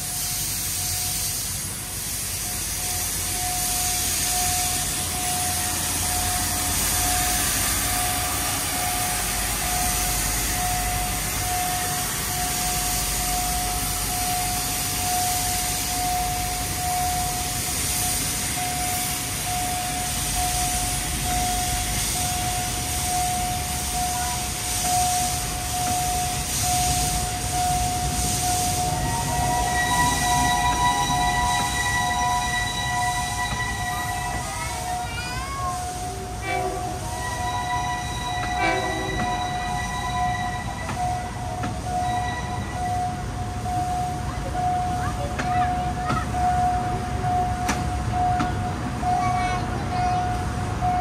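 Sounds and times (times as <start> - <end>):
steam locomotive hissing steam: 0.0 - 51.0
steady high tone: 2.2 - 51.0
chord of higher tones: 36.3 - 44.0.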